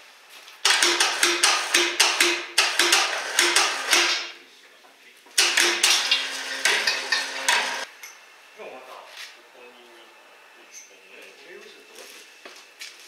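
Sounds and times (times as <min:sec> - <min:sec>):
metal striking metal: 0:05.4 - 0:07.9.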